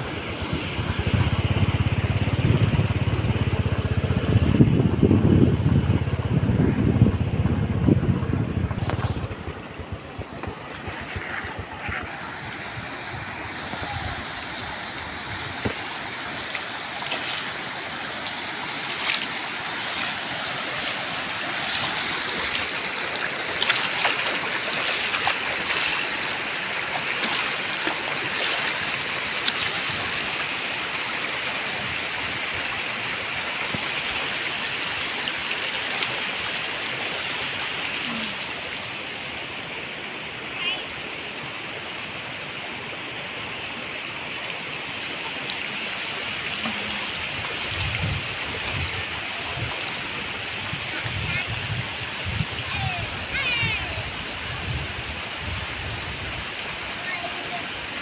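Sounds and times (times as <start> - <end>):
motorcycle engine running: 0.0 - 15.9
floodwater rushing: 0.0 - 58.0.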